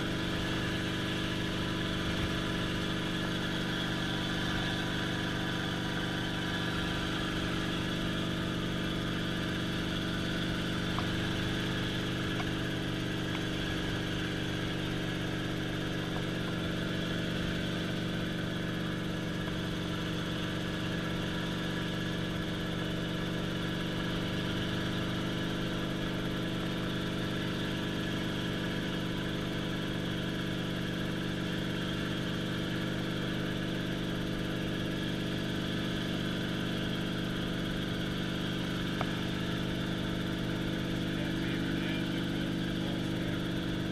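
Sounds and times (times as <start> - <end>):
helicopter engine and rotor hum: 0.0 - 43.9.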